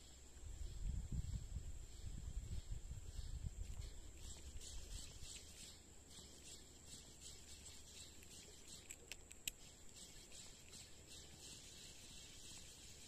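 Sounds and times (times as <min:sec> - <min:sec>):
insects chirping: 0:00.0 - 0:13.0
sharp clicks: 0:08.0 - 0:10.9.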